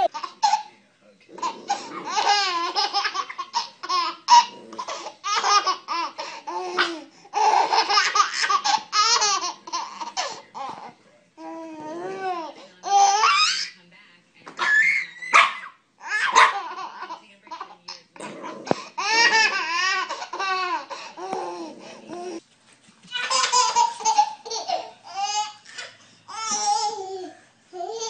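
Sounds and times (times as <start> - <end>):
baby laughing: 0.0 - 0.7, 1.4 - 10.9, 16.0 - 18.0, 19.0 - 21.6, 23.1 - 28.0.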